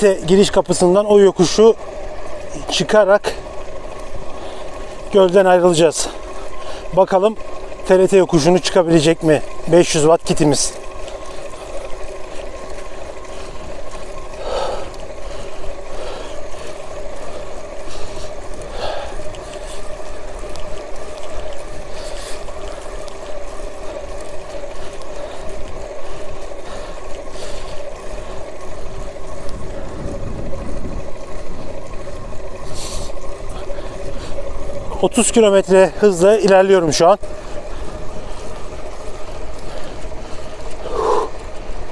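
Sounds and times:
electric bike motor whining: 0:00.0 - 0:41.9
wind rumble on microphone: 0:28.9 - 0:32.7.

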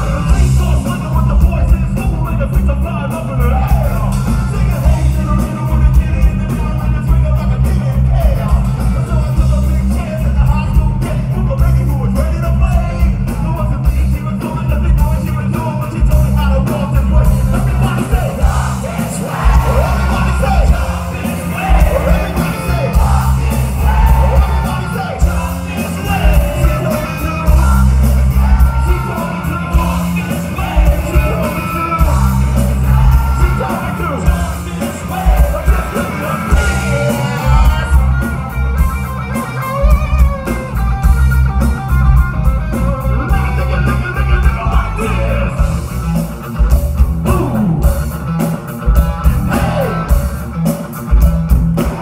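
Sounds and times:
rap and sung vocals: 0:00.0 - 0:38.3, 0:42.8 - 0:45.7, 0:49.2 - 0:50.3
live rock band playing: 0:00.0 - 0:52.0.

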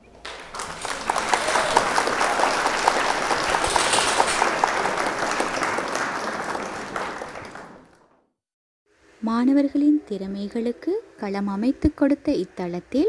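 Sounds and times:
crowd applauding: 0:00.0 - 0:08.2.

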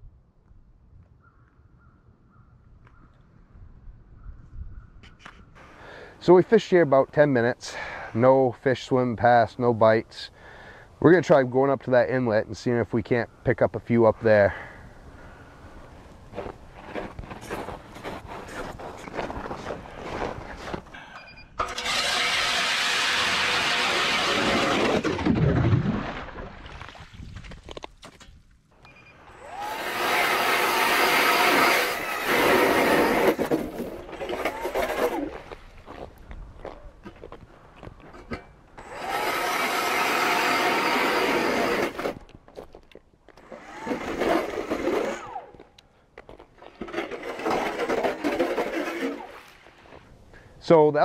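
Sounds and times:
ice auger motor hum: 0:21.6 - 0:25.3, 0:28.8 - 0:35.5, 0:38.8 - 0:42.2, 0:43.4 - 0:45.7, 0:46.7 - 0:49.7
auger bit grinding ice: 0:21.6 - 0:25.4, 0:29.2 - 0:35.6, 0:38.2 - 0:42.4, 0:43.3 - 0:50.0.

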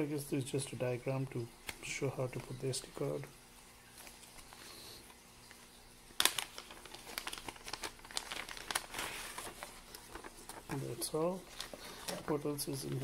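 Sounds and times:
plastic bag crinkling: 0:05.6 - 0:13.0.

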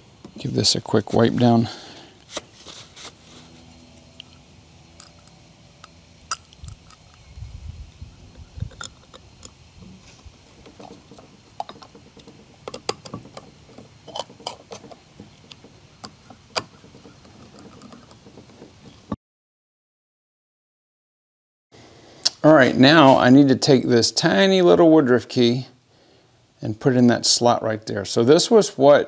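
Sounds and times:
small clicks and metal taps: 0:10.6 - 0:18.8.

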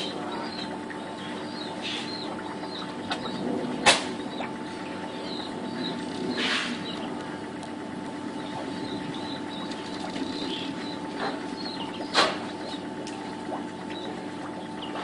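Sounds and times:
steady low hum: 0:00.0 - 0:15.0
small bird chirping: 0:04.2 - 0:07.6, 0:08.3 - 0:15.0.

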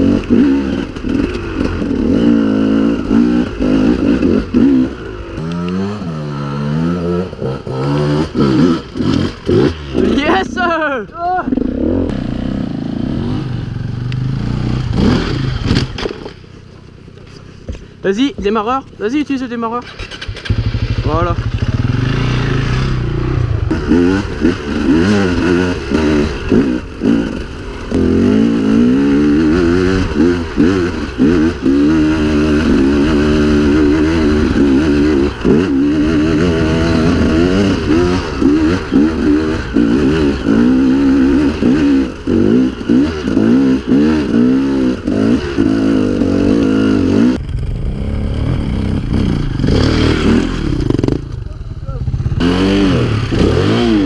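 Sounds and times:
motorcycle engine revving: 0:00.0 - 0:17.3, 0:18.2 - 0:54.0.

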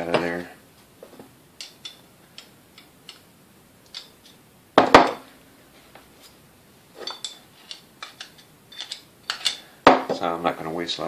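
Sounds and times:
screwdriver clicking and scraping metal: 0:07.0 - 0:09.6.

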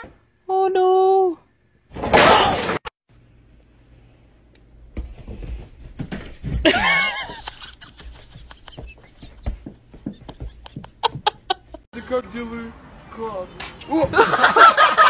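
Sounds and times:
person laughing: 0:06.6 - 0:11.8.

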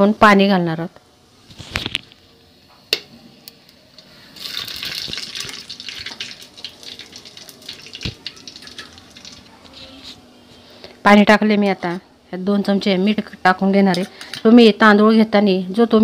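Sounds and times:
oil crackling: 0:04.0 - 0:10.0
water pouring into hot oil: 0:04.3 - 0:09.5.

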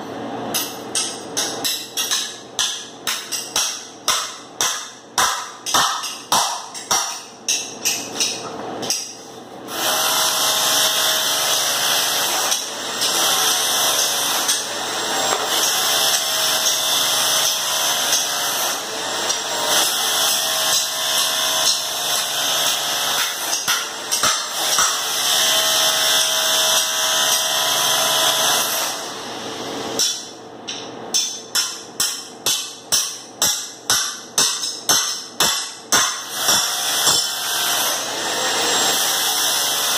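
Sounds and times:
harsh scraping grinding on floor: 0:09.7 - 0:23.4.

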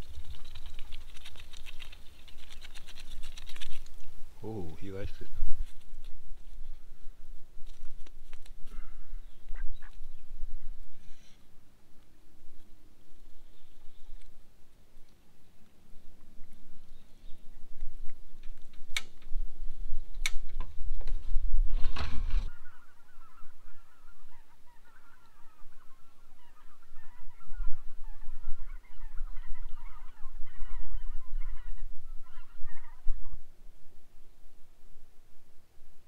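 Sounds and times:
rustling with low rumble: 0:00.0 - 0:36.0
geese honking: 0:22.5 - 0:33.4.

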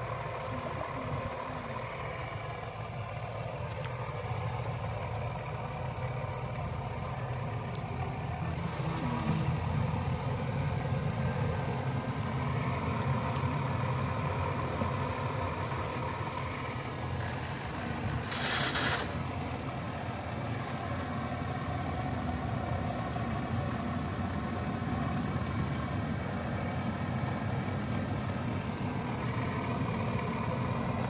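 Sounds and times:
toy excavator motors humming: 0:00.0 - 0:31.0
brief hissing rush: 0:18.2 - 0:19.2.

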